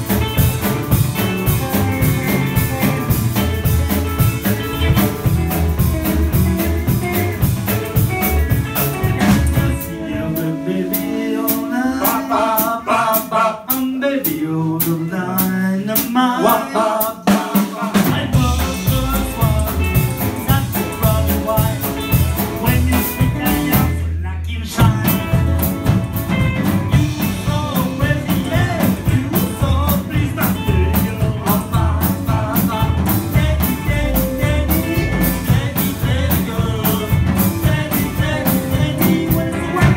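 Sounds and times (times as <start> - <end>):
acoustic and electric guitars: 0.0 - 39.9
drums: 0.0 - 39.9
upright bass: 0.0 - 39.9
person singing: 8.2 - 25.7, 26.9 - 39.9.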